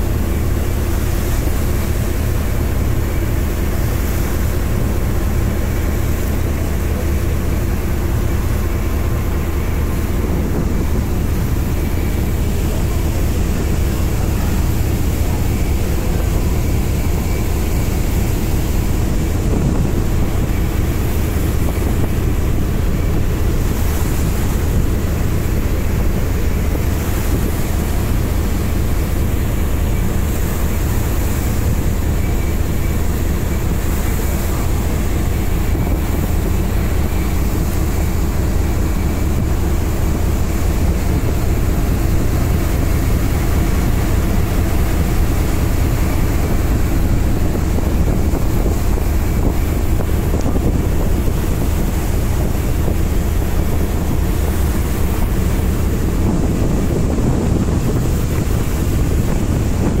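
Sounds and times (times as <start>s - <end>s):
boat engine droning: 0.0s - 60.0s
water rushing past hull: 0.0s - 60.0s.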